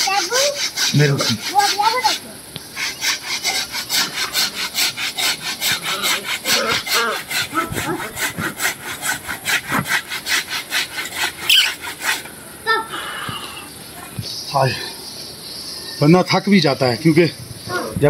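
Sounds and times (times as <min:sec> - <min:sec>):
hand saw cutting wood: 0:00.0 - 0:12.3.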